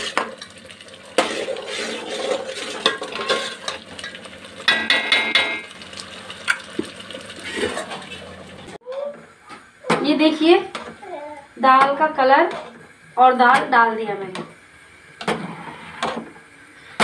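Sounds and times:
puree frying: 0.0s - 17.0s
ladle scraping metal pot: 1.1s - 5.6s, 7.3s - 8.7s
ladle knocking pot: 2.6s - 5.7s.

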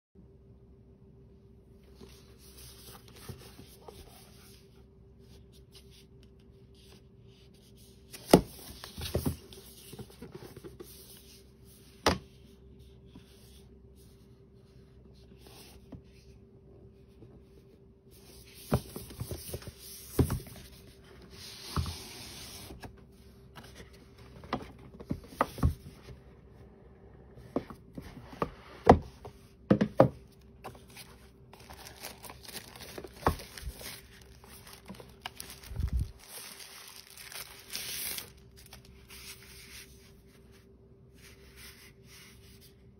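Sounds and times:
faint steady hum: 0.2s - 42.9s
cardboard rubbing and sliding: 18.2s - 22.9s.

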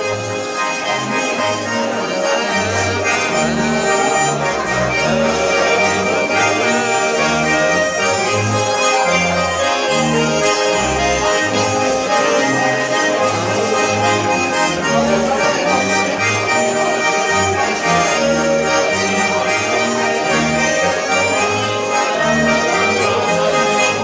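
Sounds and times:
button accordions playing folk tune: 0.0s - 24.0s
plucked double bass: 0.0s - 24.0s.

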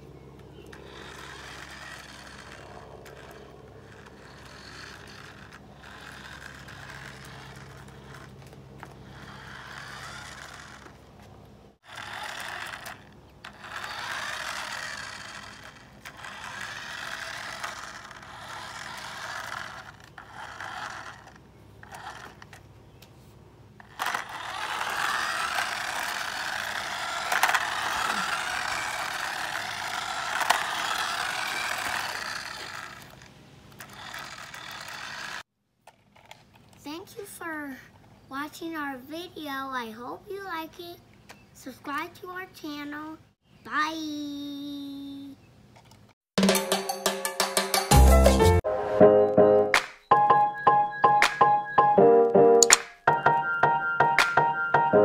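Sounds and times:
toy truck motor whirring: 0.6s - 22.7s, 23.8s - 38.1s
sharp clicks: 52.6s - 53.1s.

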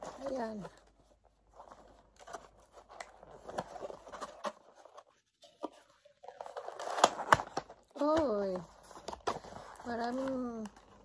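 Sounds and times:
cardboard box being opened: 1.6s - 7.7s.

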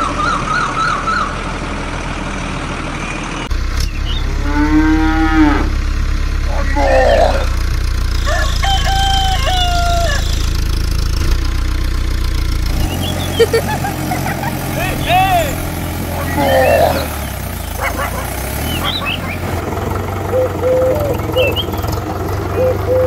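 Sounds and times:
bird calls: 0.0s - 1.4s, 3.0s - 4.6s, 6.5s - 7.6s, 8.2s - 10.9s, 12.6s - 23.0s
low engine hum: 0.0s - 23.0s
cow mooing: 4.2s - 5.8s, 6.5s - 7.6s, 14.8s - 19.2s
rooster crowing: 8.2s - 10.7s.

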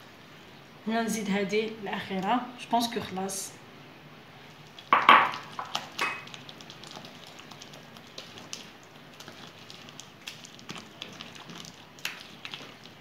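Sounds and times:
hand squelching wet mixture: 4.4s - 13.0s.

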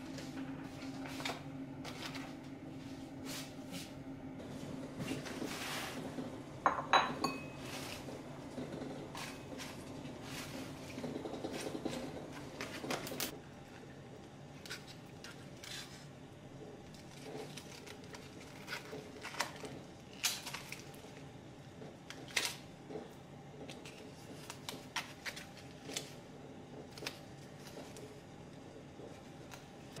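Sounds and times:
aluminium foil crinkling: 11.6s - 16.1s, 16.8s - 21.3s, 23.7s - 26.2s.

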